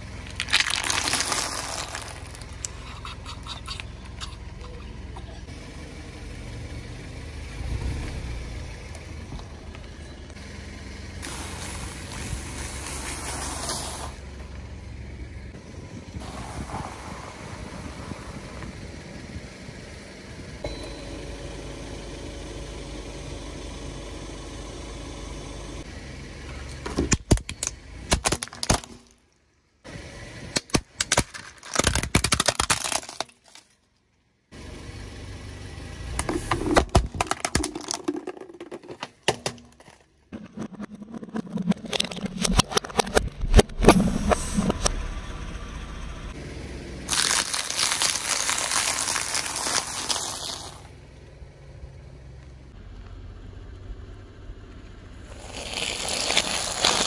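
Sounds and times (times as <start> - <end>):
car engine idling: 0.0 - 16.2, 34.2 - 40.2, 50.8 - 55.4
ice cream cones crunching: 0.2 - 4.8, 31.0 - 33.6, 36.2 - 39.0, 47.1 - 50.8, 55.3 - 57.0
plastic cracking and snapping: 27.1 - 29.1, 30.6 - 33.6.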